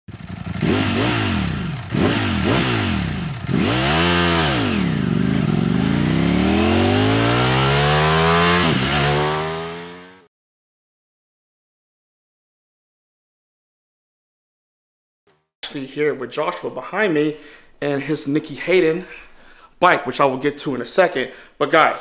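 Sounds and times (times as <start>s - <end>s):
motorcycle engine revving: 0.1s - 10.3s.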